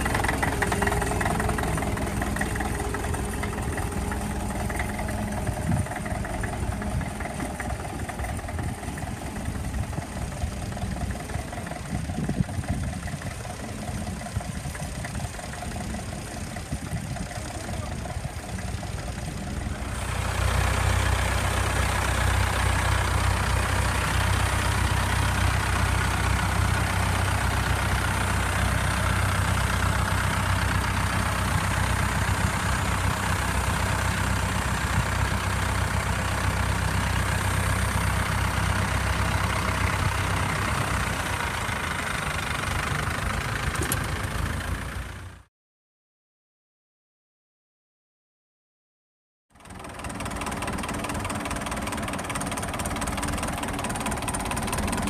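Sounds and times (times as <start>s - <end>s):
tractor engine running: 0.0s - 45.5s, 49.5s - 55.0s.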